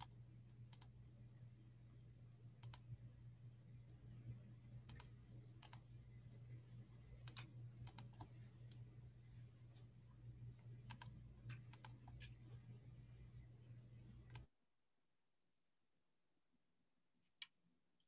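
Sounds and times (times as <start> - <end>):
low steady hum: 0.0 - 14.5
keyboard and mouse clicks: 0.7 - 1.0, 2.6 - 2.9, 4.8 - 5.9, 7.2 - 8.8, 10.8 - 12.4, 14.3 - 14.5.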